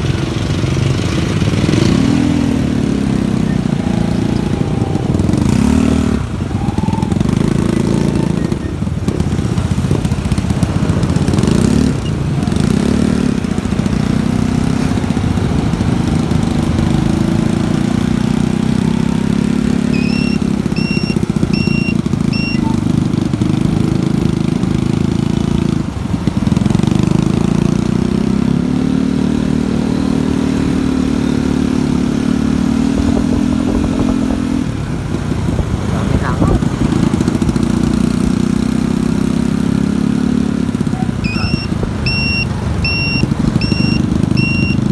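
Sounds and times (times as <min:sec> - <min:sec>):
motorcycle engine running: 0:00.0 - 0:44.9
short high beeps: 0:19.8 - 0:22.8, 0:41.2 - 0:44.9.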